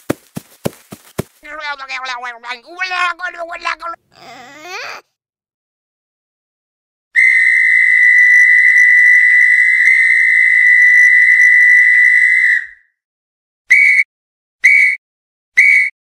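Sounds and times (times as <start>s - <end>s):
referee's whistle blast: 13.7s - 15.0s, 15.6s - 15.9s.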